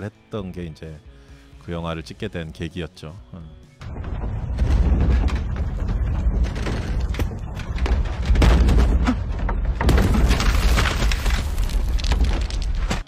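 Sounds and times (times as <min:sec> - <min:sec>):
knocks and thuds: 0:03.8 - 0:13.0.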